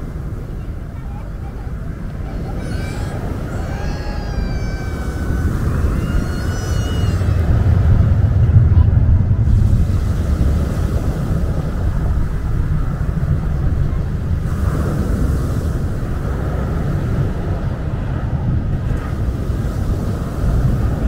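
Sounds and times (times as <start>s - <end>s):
low rumble: 1.4s - 15.1s
waves washing up pebble beach: 9.4s - 17.6s.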